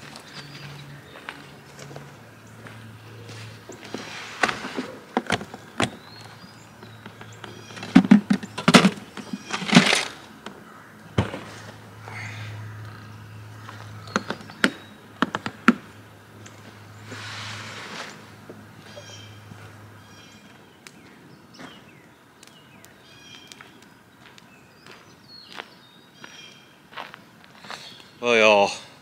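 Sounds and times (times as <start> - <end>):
cans knocking in cooler: 6.9 - 10.1.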